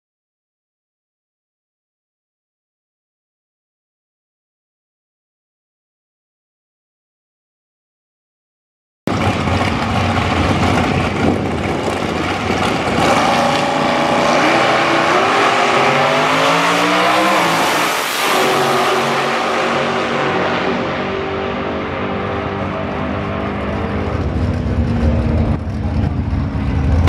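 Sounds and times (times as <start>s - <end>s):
dragster engines at full throttle: 9.1s - 27.0s.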